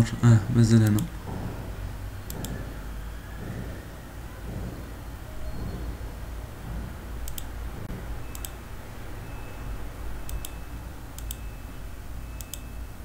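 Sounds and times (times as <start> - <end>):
low steady hum: 0.0 - 13.0
computer mouse button clicking: 11.2 - 11.4.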